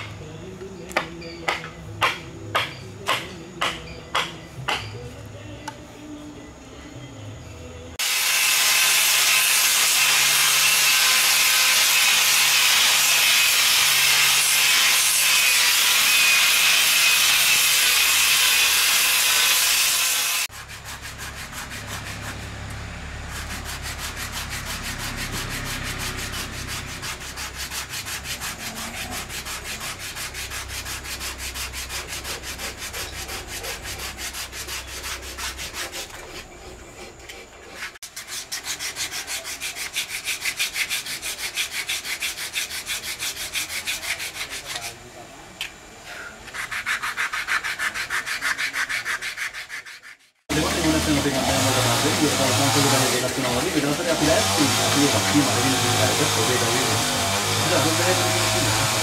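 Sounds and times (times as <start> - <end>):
hand sanding wood: 8.0 - 45.0, 46.4 - 59.0
electric sander on wood: 50.5 - 59.0.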